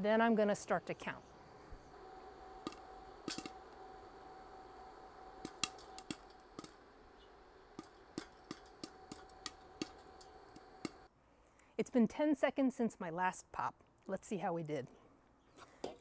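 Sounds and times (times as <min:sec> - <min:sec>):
faint steady hum: 0:00.0 - 0:14.0
popcorn popping in a pot: 0:02.0 - 0:11.1.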